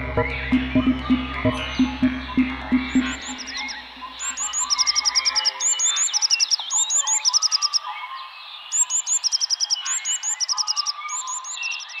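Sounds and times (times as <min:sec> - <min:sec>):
bird singing high trilling phrase: 0:00.0 - 0:07.9
birds chirping and calling: 0:00.0 - 0:12.0.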